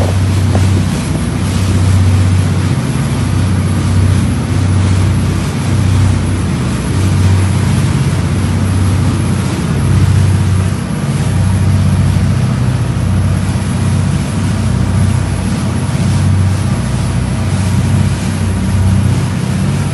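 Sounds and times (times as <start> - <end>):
ship engine deep hum: 0.0 - 19.9.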